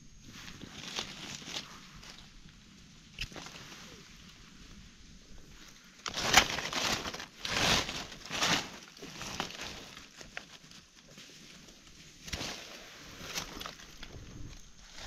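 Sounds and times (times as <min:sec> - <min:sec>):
dry leaves crunching: 0:00.4 - 0:02.5, 0:05.5 - 0:15.0.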